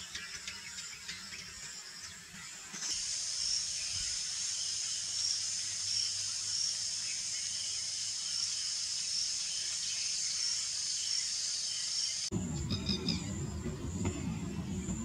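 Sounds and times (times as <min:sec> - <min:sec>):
pulsing insect call: 0:00.0 - 0:15.0
insects shrilling: 0:02.6 - 0:13.4.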